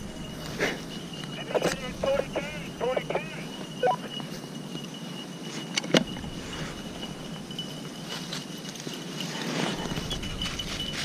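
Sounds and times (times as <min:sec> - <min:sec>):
footsteps in dry leaves: 0:03.6 - 0:11.0.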